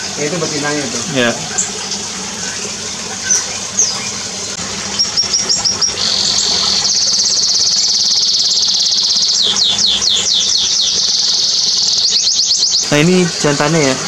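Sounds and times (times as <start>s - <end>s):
songbirds singing: 1.0s - 14.0s
fast high bird trill: 4.9s - 14.0s
down-slurred bird whistles: 5.0s - 12.9s.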